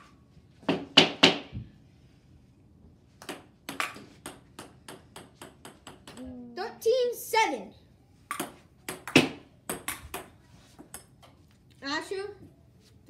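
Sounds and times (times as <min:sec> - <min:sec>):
ping-pong ball bouncing: 0:03.2 - 0:06.3, 0:08.3 - 0:11.2
ping-pong ball clicking off paddles: 0:08.3 - 0:11.2.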